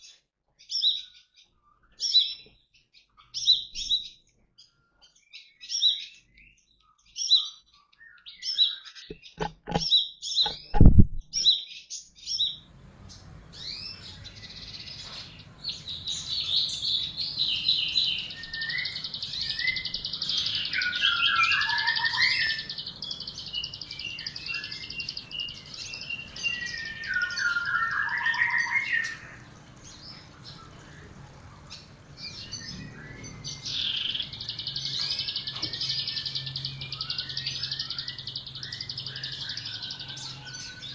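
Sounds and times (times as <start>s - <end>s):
bird song phrase: 0.0s - 40.9s
songbirds chirping and twittering: 0.0s - 40.9s
bird wing flutter thumps: 10.5s - 11.4s.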